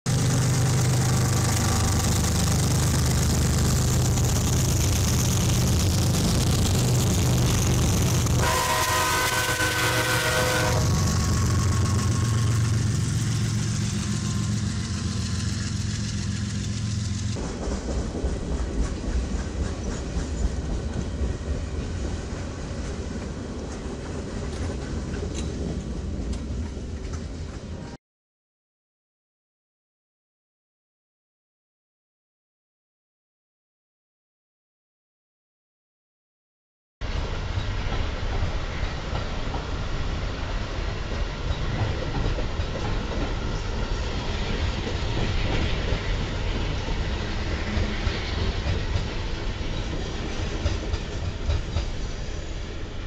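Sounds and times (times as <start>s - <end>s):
diesel train rumble: 0.1s - 28.0s, 37.0s - 53.0s
train horn: 8.3s - 13.0s.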